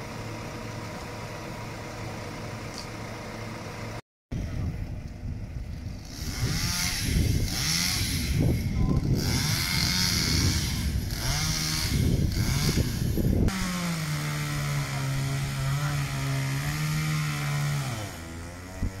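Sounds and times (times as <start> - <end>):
chainsaw cutting wood: 5.8 - 19.0.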